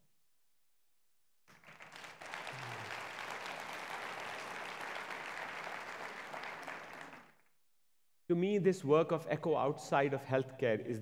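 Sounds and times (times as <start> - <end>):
audience applauding: 1.5 - 7.4.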